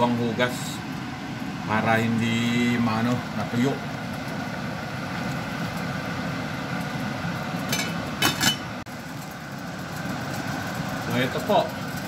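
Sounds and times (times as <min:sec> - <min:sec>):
pot boiling: 0:00.0 - 0:12.0
metal lid clinking on pot: 0:07.7 - 0:08.7.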